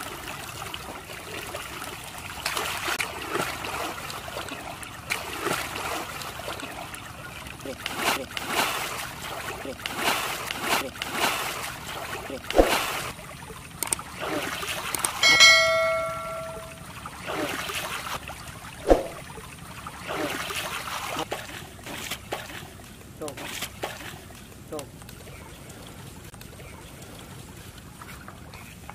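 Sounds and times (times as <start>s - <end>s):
water splashing and sloshing: 0.0s - 28.9s
bell-like notification chime: 15.2s - 16.8s.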